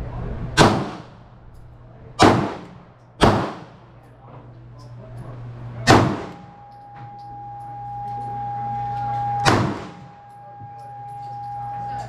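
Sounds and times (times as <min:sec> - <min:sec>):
low steady hum: 0:00.0 - 0:12.0
pistol shots: 0:00.6 - 0:01.2, 0:02.2 - 0:03.9, 0:05.8 - 0:06.5, 0:09.4 - 0:10.1
steady high tone: 0:06.2 - 0:12.0.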